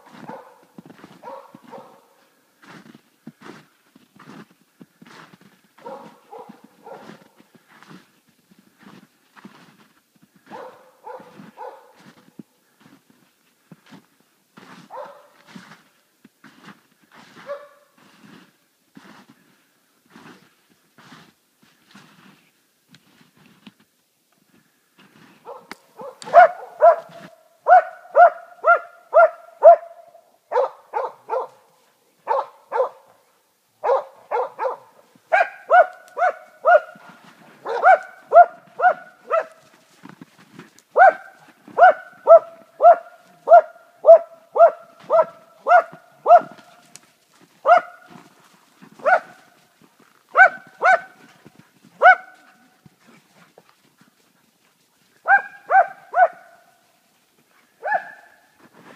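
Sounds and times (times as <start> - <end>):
dog barking hard: 0.0 - 2.2, 5.8 - 7.4, 10.5 - 12.0, 14.9 - 15.4, 17.4 - 17.9, 25.4 - 31.6, 32.3 - 33.1, 33.8 - 39.6, 41.0 - 46.7, 47.6 - 48.2, 49.0 - 49.4, 50.3 - 51.2, 52.0 - 52.5, 55.2 - 56.6, 57.8 - 58.4.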